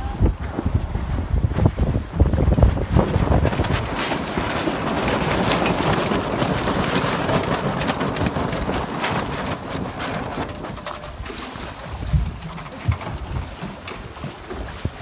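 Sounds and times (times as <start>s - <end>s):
water rushing against boat: 0.0s - 15.0s.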